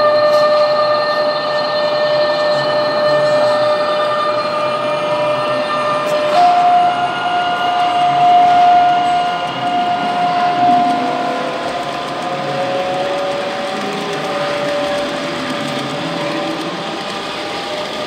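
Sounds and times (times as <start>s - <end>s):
electric whine of model train motors: 0.0s - 18.0s
wagon wheels rolling on rails: 7.3s - 18.0s.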